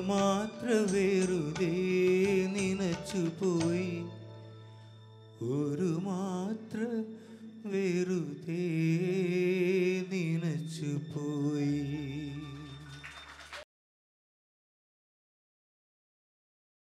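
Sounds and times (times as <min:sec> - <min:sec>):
man singing into a microphone: 0:00.0 - 0:04.2, 0:05.4 - 0:12.9.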